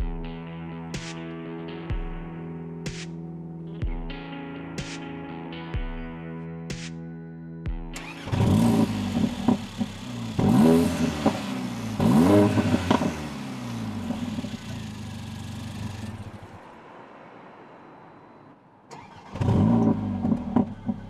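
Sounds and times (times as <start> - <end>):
exhaust crack: 8.0 - 16.7, 18.9 - 21.0
car engine revving: 8.0 - 21.0.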